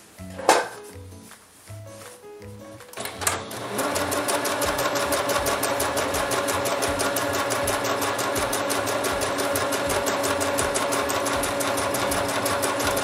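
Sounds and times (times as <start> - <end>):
sewing machine stitching: 3.0 - 13.0.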